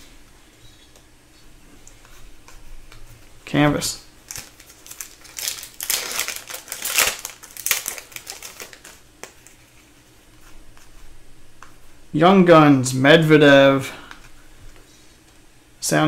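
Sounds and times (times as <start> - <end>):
foil wrapper tearing and crinkling: 4.3 - 9.4.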